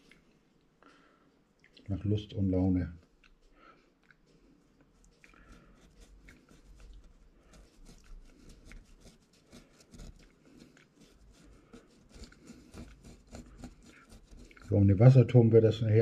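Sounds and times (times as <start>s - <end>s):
paintbrush dabbing and scraping: 4.9s - 16.0s.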